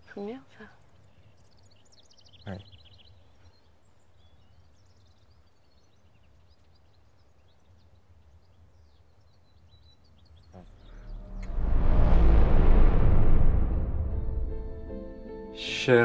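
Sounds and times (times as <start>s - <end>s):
small birds chirping: 0.0s - 11.1s
loud rushing noise: 10.6s - 15.3s
low rumble: 10.6s - 15.4s.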